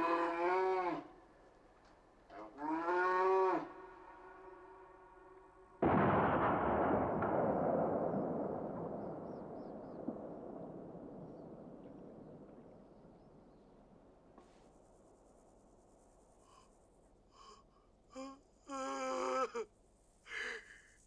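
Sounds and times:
loud rolling boom: 5.8 - 13.9.

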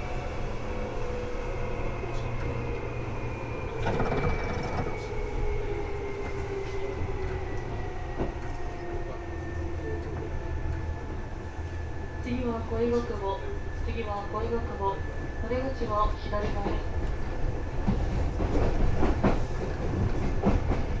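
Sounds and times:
electric train rumble and whine: 0.0 - 21.0.

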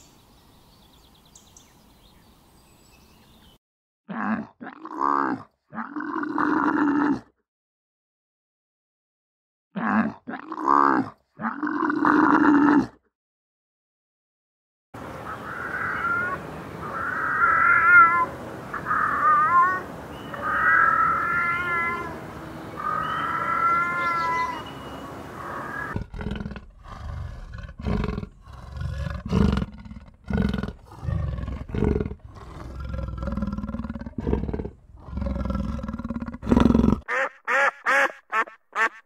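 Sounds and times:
high wavering animal cries: 15.3 - 22.2, 22.8 - 26.0
deep animal calls: 15.3 - 39.0.

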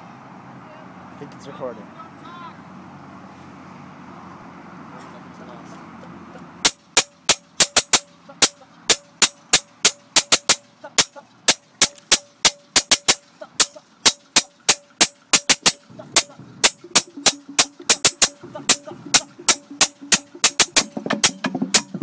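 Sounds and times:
snare drum strokes: 6.6 - 22.0.

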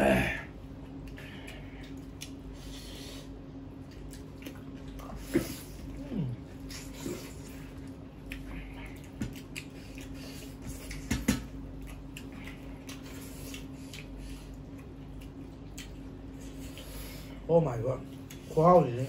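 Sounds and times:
steady low hum: 0.0 - 19.0
people chewing and smacking: 0.4 - 19.0.

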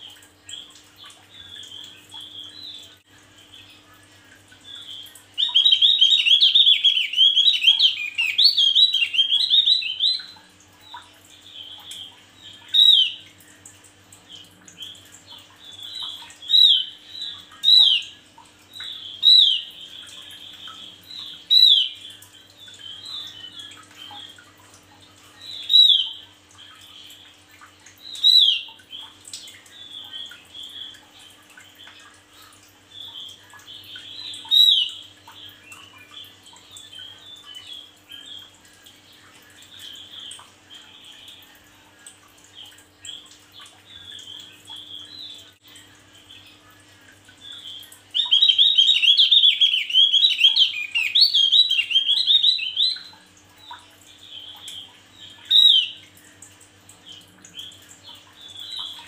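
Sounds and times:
bird chattering song: 4.6 - 13.2, 18.8 - 24.4, 25.4 - 27.2, 28.1 - 31.0, 32.9 - 38.5, 47.4 - 56.0.

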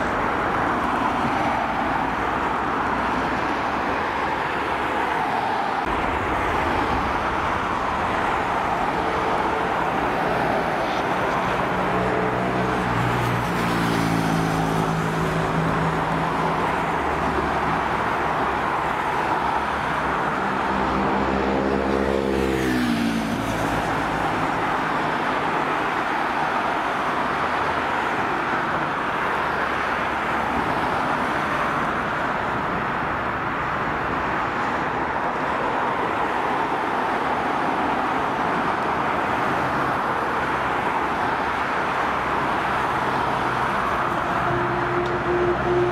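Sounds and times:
pitched drone: 44.2 - 45.9.

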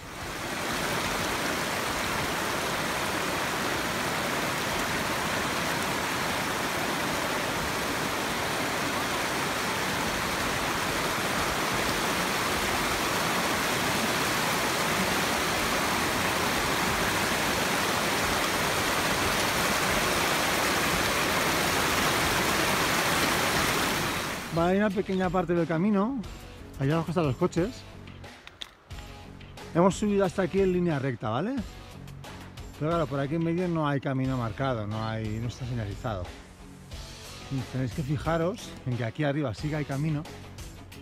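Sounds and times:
stream rushing over rocks: 0.0 - 24.6.

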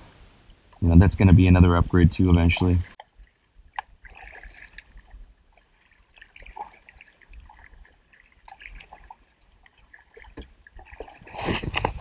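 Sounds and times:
water dripping off paddle: 2.5 - 11.9
paddle splashing in water: 2.5 - 12.0.

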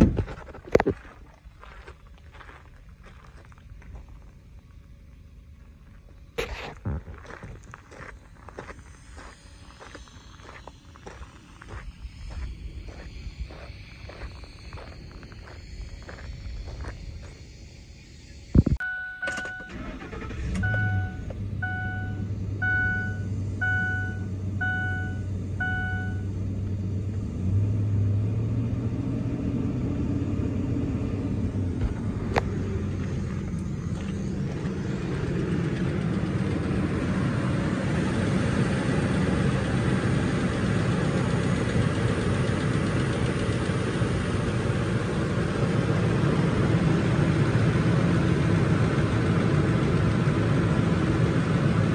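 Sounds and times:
truck engine cranking and idling: 0.0 - 51.9
dashboard warning chime beeping: 18.8 - 26.3.

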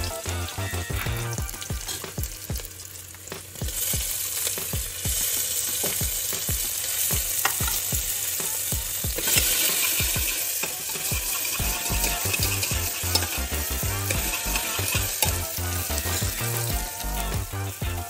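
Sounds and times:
steady low beat: 0.0 - 2.7, 11.2 - 18.0
vegetables sizzling in hot oil: 0.0 - 18.0
ladle stirring in pot: 9.2 - 17.3.

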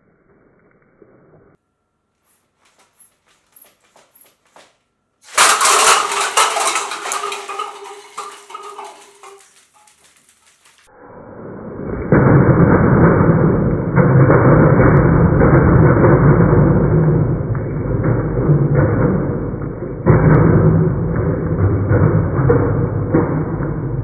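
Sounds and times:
plastic cups clattering: 5.3 - 10.8.

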